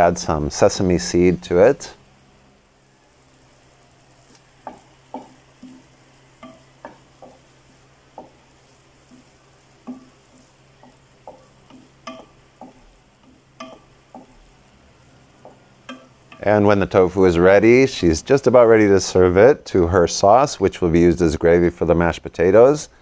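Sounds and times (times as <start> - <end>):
wooden spatula stirring in a pan: 0.8 - 19.1.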